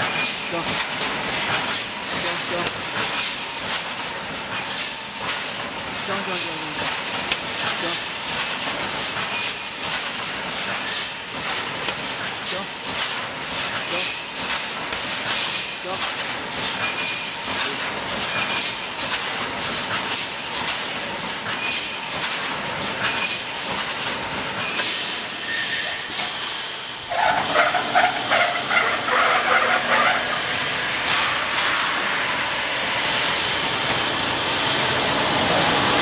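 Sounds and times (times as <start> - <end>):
welding machine clacks and hiss: 0.0 - 36.0
metallic rattle and squeal: 25.4 - 26.1, 27.1 - 30.5.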